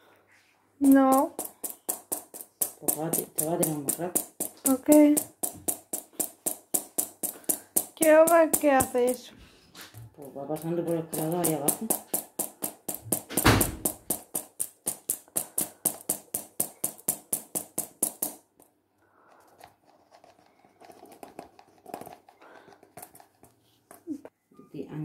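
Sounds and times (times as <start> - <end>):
metal sieve tapping: 0.8 - 9.3, 10.2 - 18.6
louder knock: 13.1 - 14.1.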